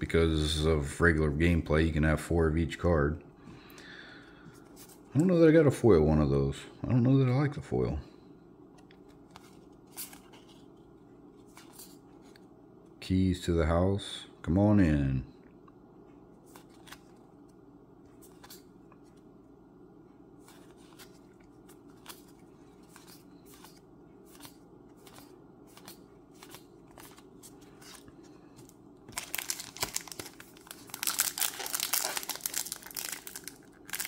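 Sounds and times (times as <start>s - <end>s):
cards being handled clicking: 20.5s - 30.4s
plastic wrapper crinkling: 29.1s - 34.0s.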